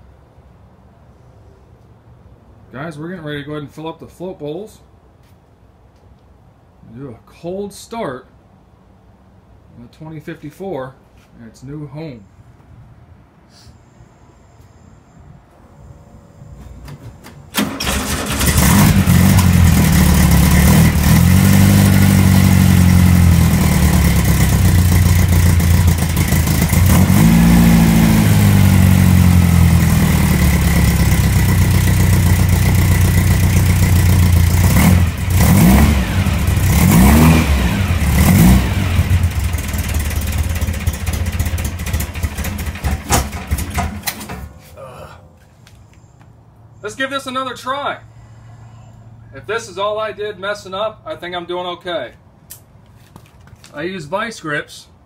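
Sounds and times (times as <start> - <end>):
engine cranking and starting: 16.8 - 21.5, 39.0 - 44.6
engine revving: 17.6 - 43.9.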